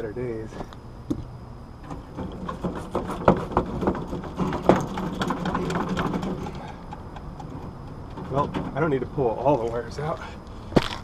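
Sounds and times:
clicks and scrapes of wires: 1.8s - 8.8s.

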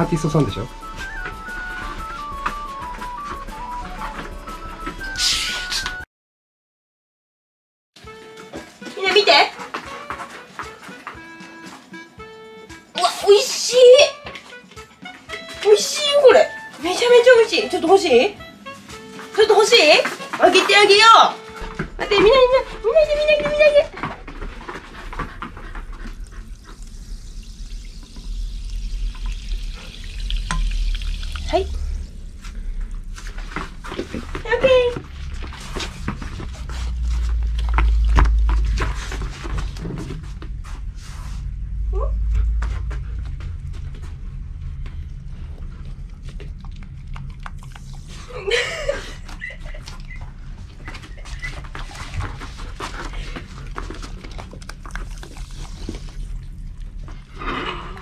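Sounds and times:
dogs lapping water from metal bowl: 23.0s - 40.0s, 45.6s - 48.4s, 50.7s - 57.4s
bubbles fizzing and crackling: 25.8s - 36.6s, 53.4s - 57.4s
carbonated water pouring into bowl: 26.5s - 32.1s.

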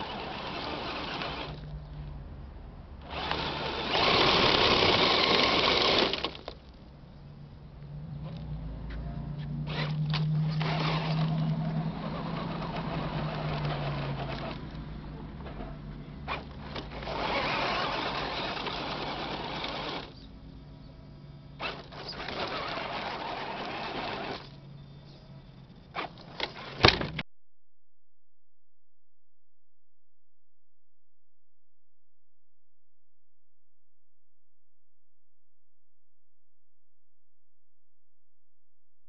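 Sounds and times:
electric motor and gearbox whining: 0.0s - 1.8s, 3.0s - 6.6s, 8.2s - 20.4s, 21.6s - 25.2s, 25.9s - 27.2s.

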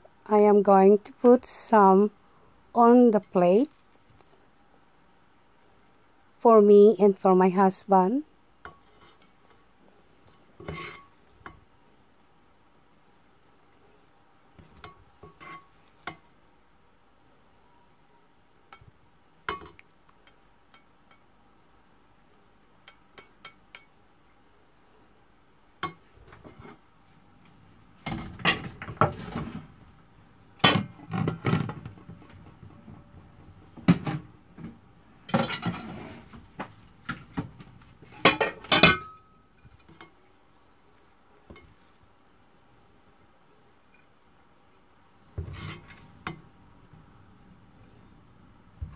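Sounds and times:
spoon scraping metal pan: 8.7s - 9.4s, 10.3s - 11.2s, 14.7s - 16.2s, 45.4s - 46.4s.

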